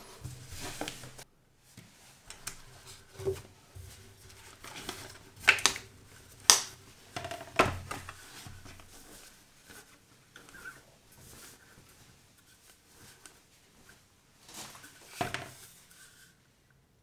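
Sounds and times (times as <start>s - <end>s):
cloth rustling and sliding: 0.0s - 7.2s.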